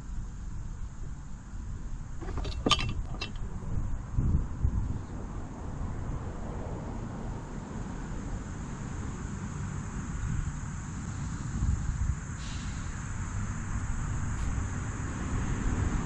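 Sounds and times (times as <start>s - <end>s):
wind buffeting microphone: 2.2s - 6.4s
faint high hiss: 11.0s - 13.4s.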